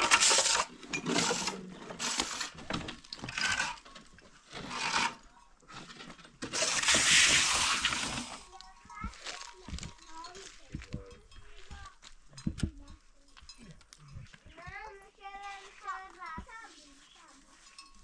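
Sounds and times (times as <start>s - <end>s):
trowel scraping mortar: 0.0s - 8.5s.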